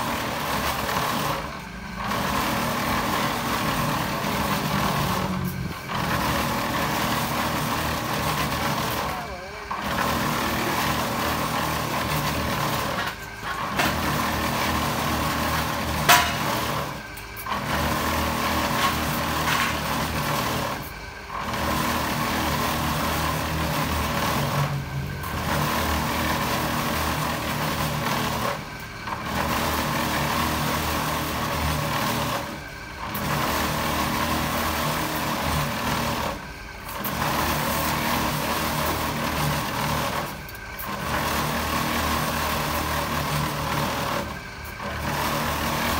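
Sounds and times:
concrete mixer humming: 0.0 - 45.9.

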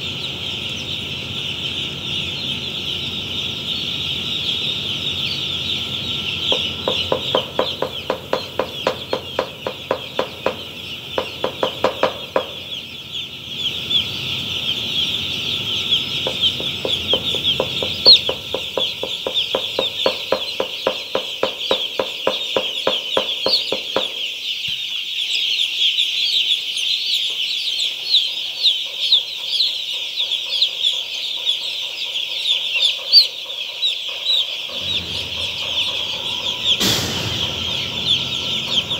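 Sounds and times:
chicks peeping: 0.0 - 38.9
rhythmic ticking: 16.2 - 22.0.

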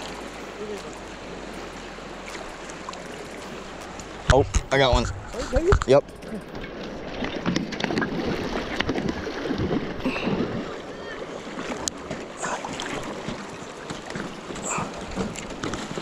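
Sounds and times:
fast river current rushing: 0.0 - 16.0
wind buffeting microphone: 3.3 - 10.7.

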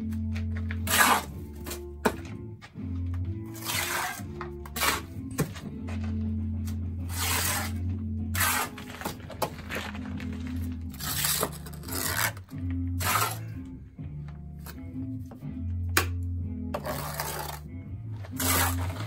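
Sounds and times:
background music with bass line: 0.0 - 19.0
trowel scraping mortar: 0.7 - 1.9, 3.5 - 5.5, 7.0 - 13.5, 16.7 - 19.0.

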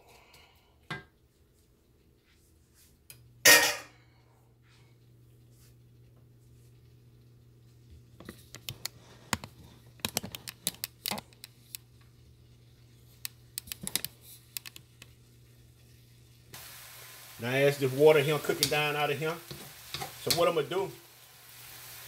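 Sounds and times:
vegetables frying in a wok: 11.6 - 22.0.

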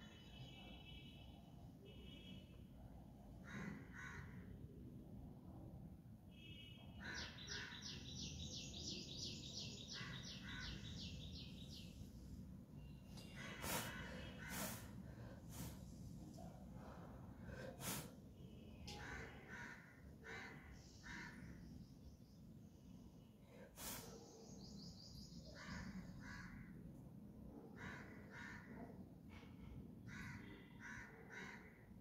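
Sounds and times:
crows cawing: 3.4 - 4.5, 19.0 - 21.5, 25.6 - 26.8, 27.8 - 28.8, 30.1 - 32.0.

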